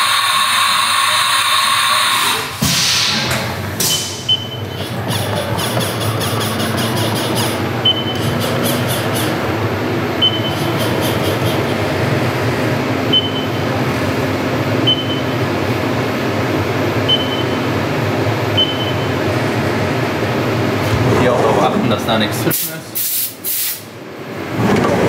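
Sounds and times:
milling machine humming: 3.3s - 21.1s
short high beeps: 10.2s - 10.9s, 13.1s - 13.6s.

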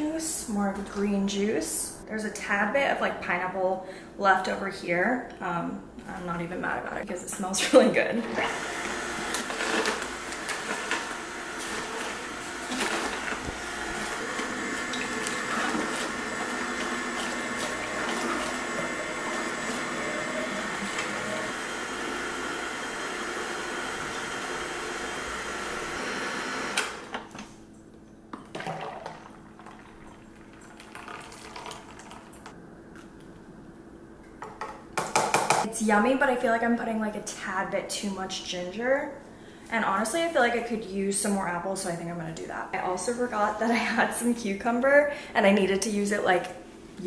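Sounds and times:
juicer crushing vegetables: 8.2s - 27.4s, 28.5s - 32.5s
juice pouring into a pitcher: 8.6s - 26.5s, 28.4s - 32.5s.

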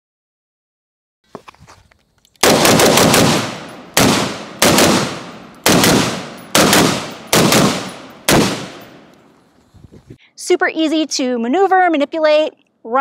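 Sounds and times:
rifle shots with echo: 2.4s - 9.2s.

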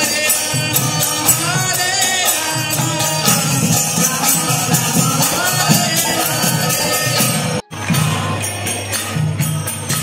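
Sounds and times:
devotional kirtan music: 0.0s - 10.0s
jingling hand percussion: 0.0s - 10.0s.

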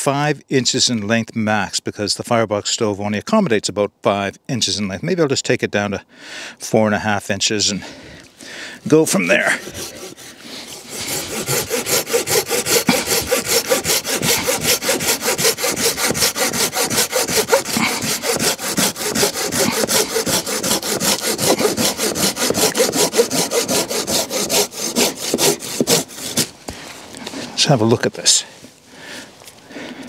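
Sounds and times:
handsaw cutting wood: 8.9s - 26.6s.

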